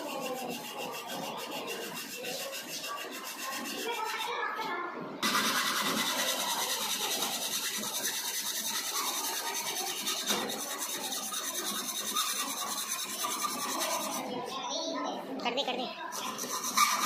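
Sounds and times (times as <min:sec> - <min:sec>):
hacksaw cutting metal pipe: 0:05.2 - 0:14.2, 0:16.2 - 0:17.0.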